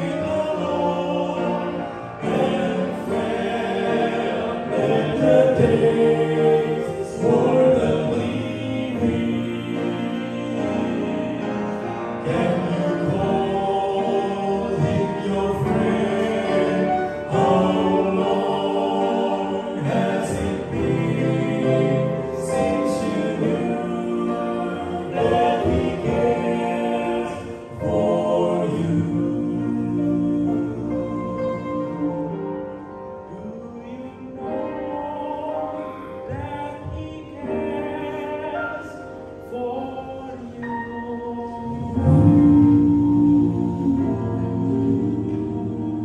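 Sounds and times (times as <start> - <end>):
male vocal quartet singing: 0.0 - 46.0
piano accompaniment: 0.0 - 46.0.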